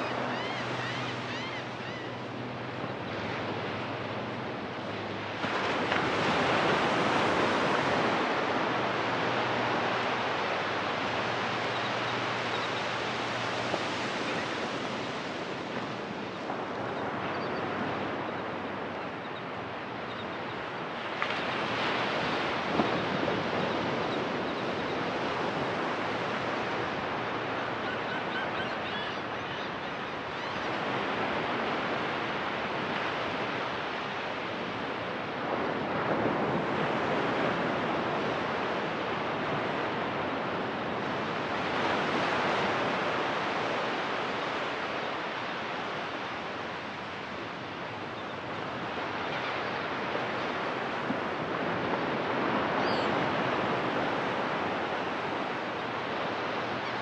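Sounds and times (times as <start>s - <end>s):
ocean surf breaking on beach: 0.0s - 57.0s.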